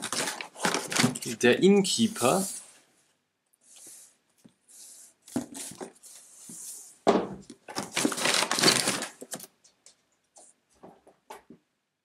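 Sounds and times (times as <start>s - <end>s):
cardboard boxes crinkling: 0.0s - 1.4s, 7.7s - 9.5s.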